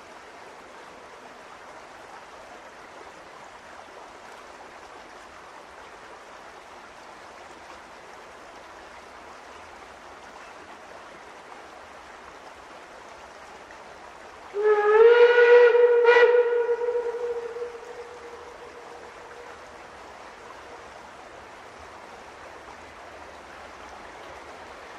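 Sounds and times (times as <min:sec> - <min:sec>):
steam locomotive whistle: 0:14.5 - 0:19.4.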